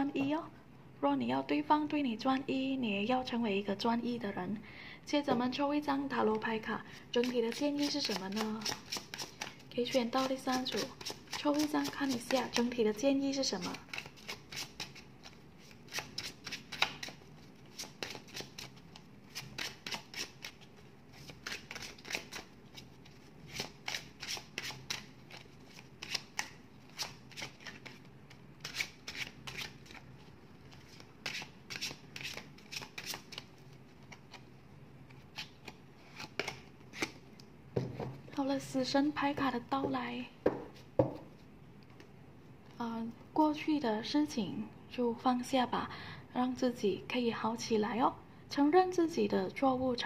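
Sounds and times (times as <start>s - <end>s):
cards being shuffled: 7.2s - 12.8s, 13.6s - 37.2s.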